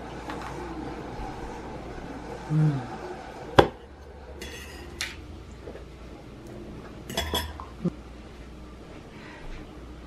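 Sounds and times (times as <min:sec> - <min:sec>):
dishes and cutlery clinking: 0:04.4 - 0:05.9, 0:07.0 - 0:07.8.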